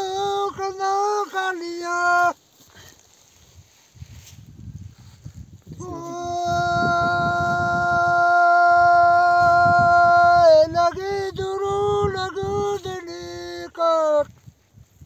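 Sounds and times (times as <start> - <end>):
elderly man singing unaccompanied: 0.0 - 2.4, 5.8 - 14.3.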